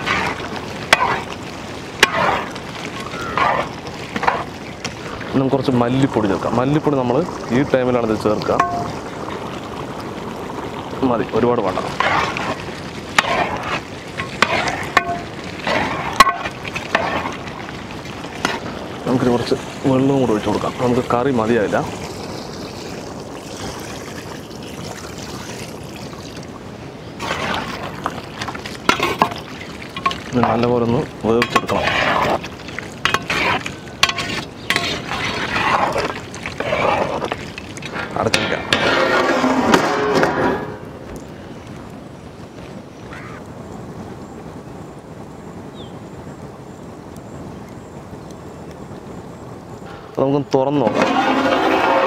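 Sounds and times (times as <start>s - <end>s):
ladle stirring thick curry: 0.0s - 5.3s, 11.6s - 22.7s, 27.2s - 39.7s, 50.8s - 52.0s.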